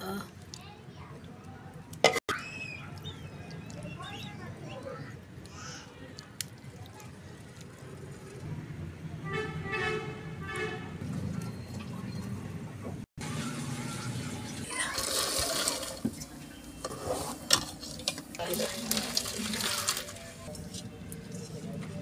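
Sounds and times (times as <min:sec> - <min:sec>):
water pouring into a pot: 0:13.9 - 0:16.3, 0:17.5 - 0:20.8
metal utensils clinking: 0:14.8 - 0:22.0.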